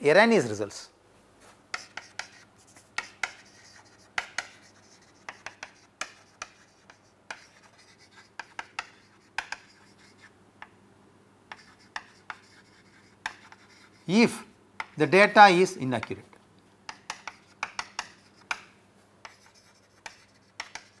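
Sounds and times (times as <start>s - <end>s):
chalk scratching on chalkboard: 1.7s - 10.3s, 11.5s - 14.2s, 16.9s - 21.0s.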